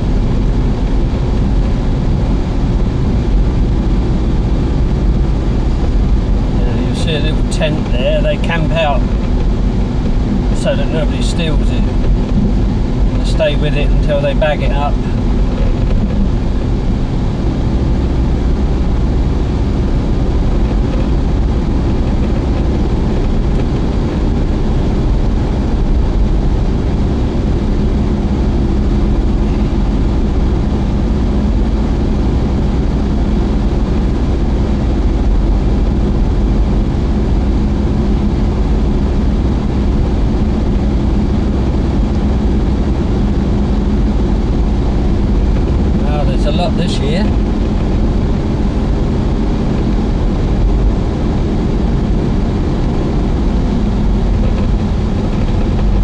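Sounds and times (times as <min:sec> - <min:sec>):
car interior driving rumble: 0:00.0 - 0:56.0.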